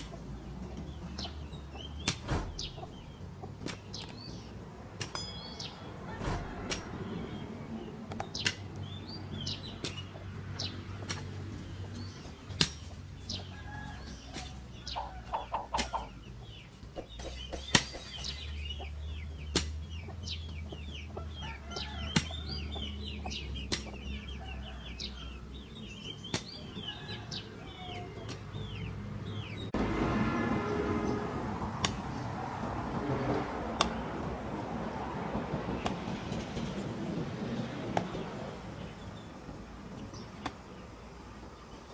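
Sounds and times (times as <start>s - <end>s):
chickens clucking: 0.0s - 29.8s
small birds chirping: 0.0s - 29.8s, 38.0s - 41.9s
hoe chopping into dry soil: 2.0s - 2.9s, 3.6s - 4.2s, 8.1s - 8.8s, 9.7s - 10.1s, 11.0s - 11.4s, 12.1s - 13.0s, 15.6s - 16.1s, 17.2s - 18.5s, 19.4s - 19.9s, 21.8s - 22.7s, 23.6s - 24.1s, 26.2s - 26.7s, 31.8s - 32.1s.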